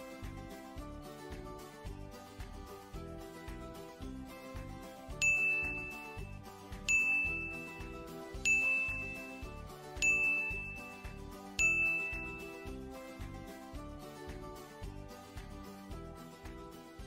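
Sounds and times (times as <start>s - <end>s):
background music with beat: 0.0s - 17.0s
bright bell ding: 5.2s - 12.6s.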